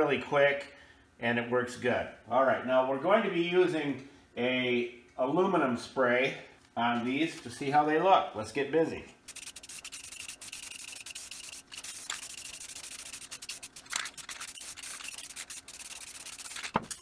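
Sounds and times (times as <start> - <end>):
rag scrubbing on steel wheel: 9.3 - 17.0.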